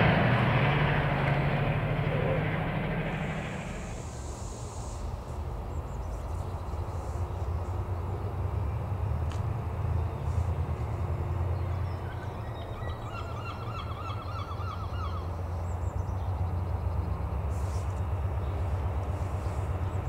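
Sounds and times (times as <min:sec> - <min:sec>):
diesel locomotive rumbling: 0:00.0 - 0:20.0.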